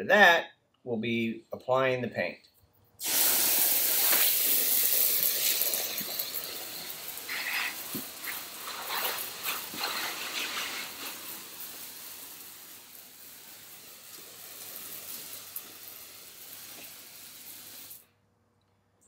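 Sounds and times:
hose spraying water on concrete: 3.0s - 18.0s.

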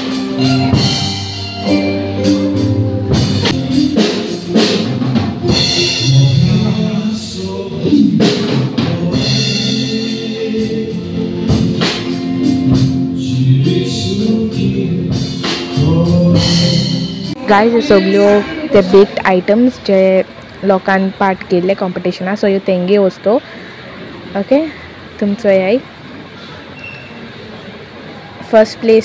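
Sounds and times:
drum kit beat: 0.0s - 19.3s
keyboard: 0.0s - 19.7s
person singing: 5.4s - 12.0s, 13.0s - 19.2s.

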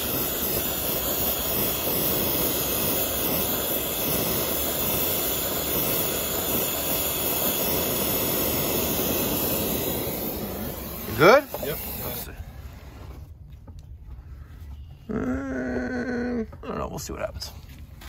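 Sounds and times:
torch flame roaring: 0.0s - 13.4s.

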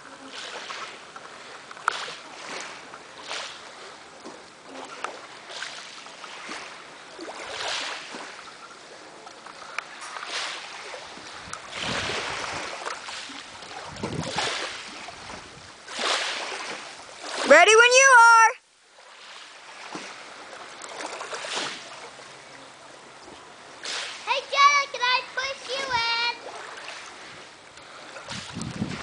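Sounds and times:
waves splashing against seawall: 0.0s - 29.0s
wind gusts on microphone: 11.0s - 15.9s, 28.1s - 29.0s.

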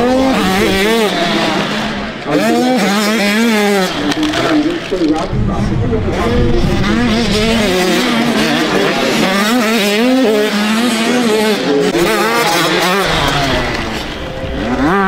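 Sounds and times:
dirt bike engines revving: 0.0s - 15.0s
deep rumble: 5.1s - 8.6s.

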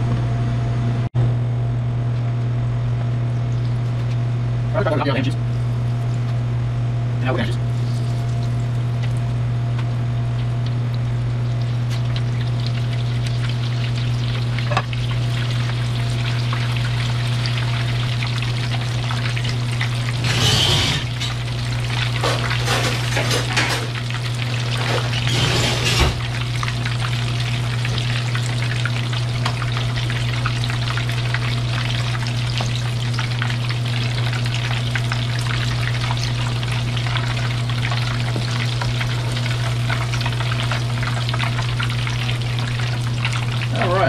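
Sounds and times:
steady low hum: 0.0s - 44.0s
hot oil crackling and sizzling: 7.6s - 44.0s
slotted spoon stirring in oil: 11.8s - 32.7s.

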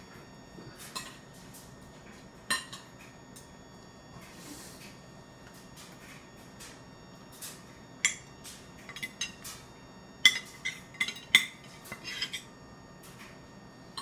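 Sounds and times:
ceramic bowl clinking on tray: 10.2s - 12.5s.

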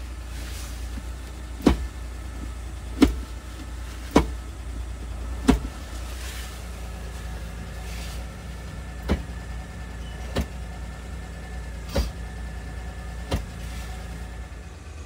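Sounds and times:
truck engine idling hum: 0.0s - 15.0s
gear lever clunks: 9.0s - 9.4s, 10.0s - 10.7s, 11.9s - 12.3s, 13.2s - 13.6s.

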